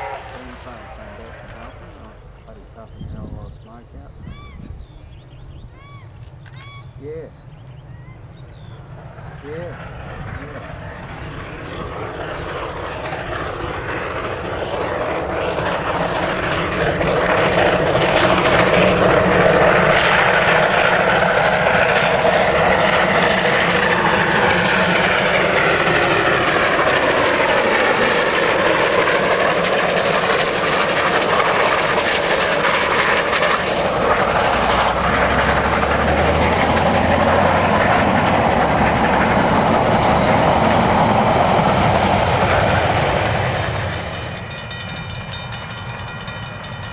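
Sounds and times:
steam locomotive passing: 0:00.0 - 0:46.9
carriages rolling on rails: 0:09.7 - 0:46.9.

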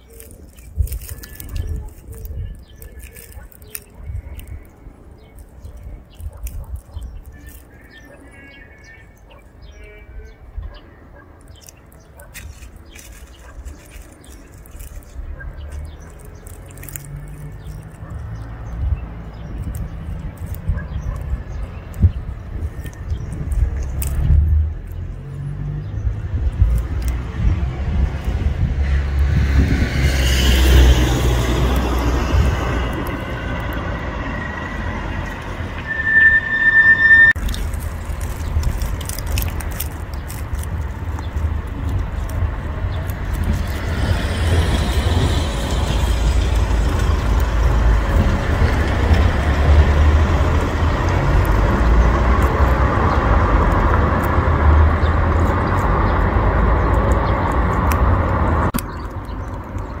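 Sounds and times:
wind rumbling on microphone: 0:00.0 - 0:07.8, 0:12.2 - 1:00.0
high-pitched squeal: 0:31.5 - 0:39.2.

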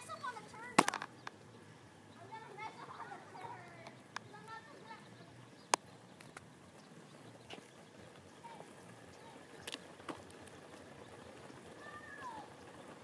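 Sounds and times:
street ambience: 0:00.0 - 0:13.0.

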